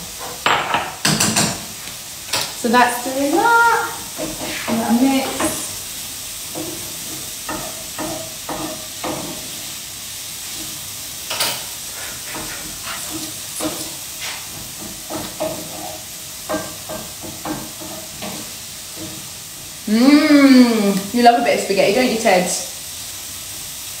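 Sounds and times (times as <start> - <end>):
food sizzling in pan: 0.0 - 24.0
utensil tapping pan: 3.4 - 5.7, 6.5 - 9.5, 12.3 - 19.3.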